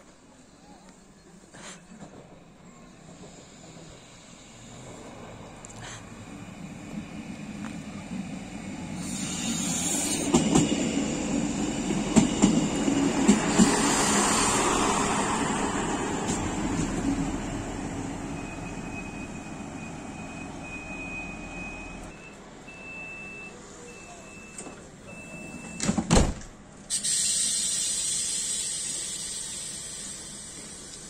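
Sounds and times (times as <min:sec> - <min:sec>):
diesel railcar braking: 0:00.1 - 0:31.0
hissing air: 0:08.9 - 0:10.5, 0:12.6 - 0:17.4, 0:26.9 - 0:31.0
high brake squeal: 0:09.0 - 0:10.3, 0:26.9 - 0:30.4.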